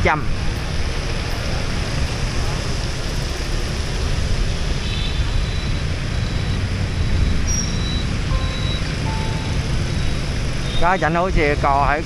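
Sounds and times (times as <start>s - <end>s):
heavy street traffic rumble: 0.0s - 12.0s
faint high tones: 7.6s - 10.3s.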